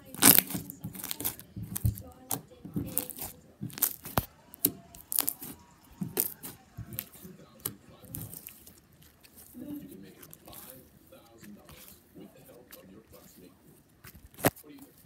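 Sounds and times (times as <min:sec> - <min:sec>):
slime sticky pops and clicks: 0:00.1 - 0:05.5.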